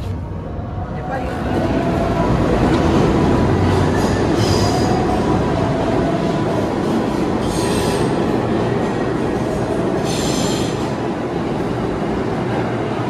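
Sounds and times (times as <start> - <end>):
subway train rumble: 0.0 - 13.0
train wheel squeals: 7.4 - 8.2, 10.0 - 10.9.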